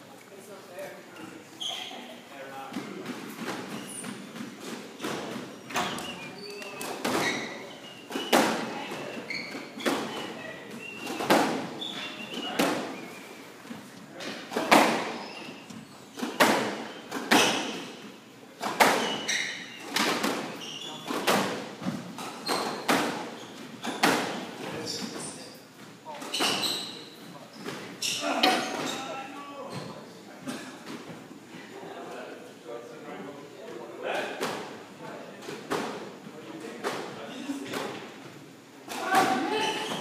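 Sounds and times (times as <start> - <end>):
shoes squeaking on floor: 1.1 - 30.2, 39.0 - 40.0
squash ball hits echoing: 8.1 - 9.1, 11.0 - 11.8, 14.3 - 15.2, 16.2 - 18.0, 18.6 - 19.3, 19.9 - 24.5.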